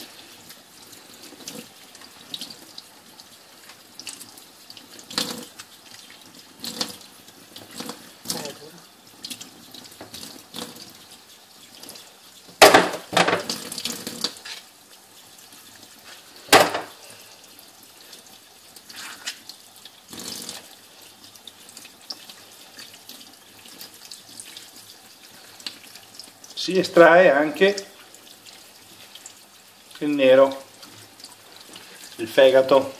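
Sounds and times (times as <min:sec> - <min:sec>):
tap running into steel sink: 0:16.5 - 0:17.0.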